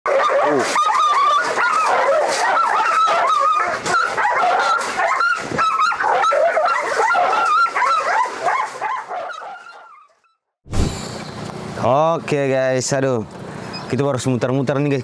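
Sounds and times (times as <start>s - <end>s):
dogs barking and whining: 0.1s - 10.4s.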